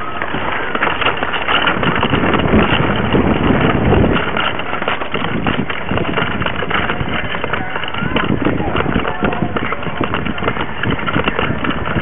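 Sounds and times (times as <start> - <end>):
bike clattering and rattling: 0.0 - 12.0
tyre rumble: 0.0 - 12.0
wind buffeting microphone: 0.0 - 12.0.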